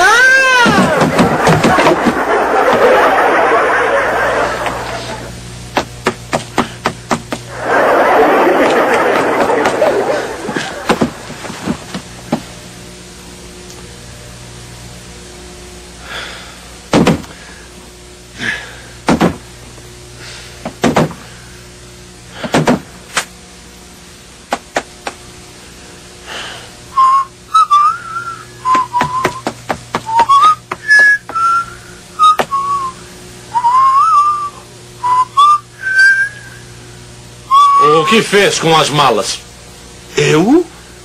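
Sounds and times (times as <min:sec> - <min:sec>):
thumps and knocks: 0:00.6 - 0:02.2, 0:05.8 - 0:07.4, 0:16.9 - 0:17.3, 0:19.1 - 0:19.4, 0:20.6 - 0:21.2
man whistling a tune: 0:27.0 - 0:36.6, 0:37.5 - 0:38.1.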